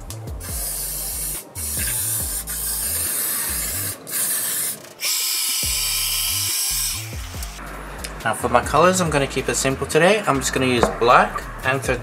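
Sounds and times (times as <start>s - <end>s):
spray paint can hissing: 0.3s - 7.6s
hair dryer blowing: 0.4s - 7.6s.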